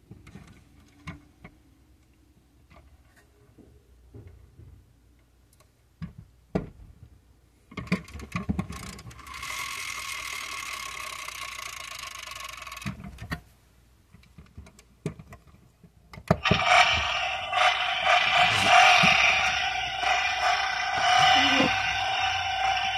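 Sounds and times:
toy model clicks and rattles: 7.8 - 13.2.

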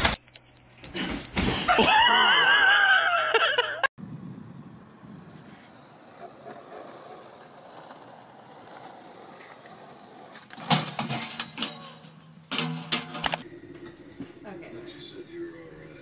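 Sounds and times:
skateboard wheels rolling on asphalt: 4.0 - 11.5.

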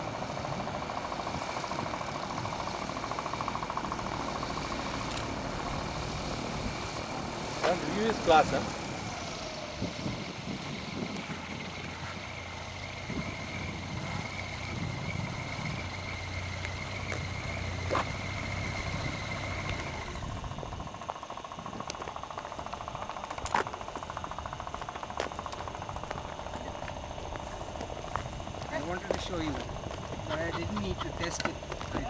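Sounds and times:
engine running at low speed: 0.0 - 32.0
steady high whine: 0.0 - 32.0
sharp clicks: 5.0 - 5.4.

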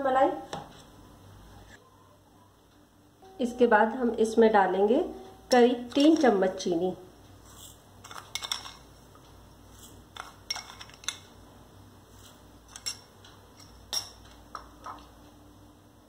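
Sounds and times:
spoon clinking against bowls: 8.0 - 8.9, 10.2 - 11.3, 12.7 - 15.1.

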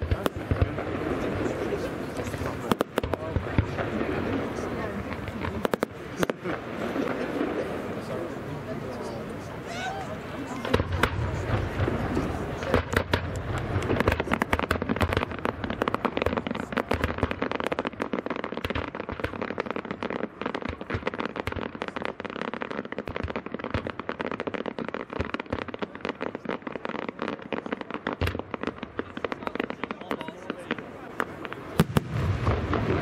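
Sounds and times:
fireworks crackling: 0.0 - 33.0
deep firework thump: 31.4 - 33.0.

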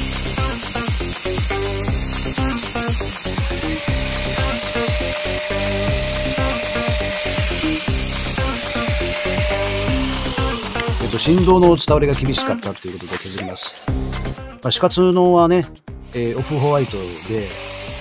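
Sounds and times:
rasping sawing-like noise: 0.0 - 11.8, 16.1 - 18.0
background music with beat: 0.0 - 18.0.

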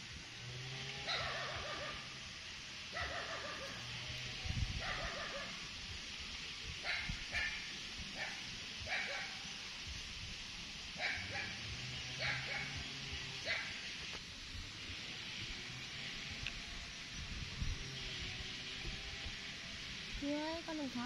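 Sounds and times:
animal yelps and squeaks: 1.1 - 2.1.

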